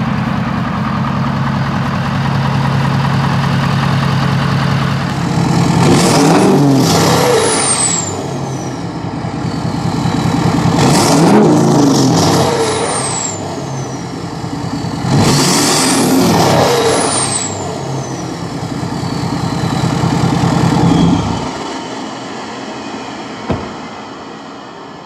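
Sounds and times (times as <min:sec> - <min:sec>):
diesel engine revving: 0:00.0 - 0:25.0
turbo whistle: 0:16.6 - 0:21.9.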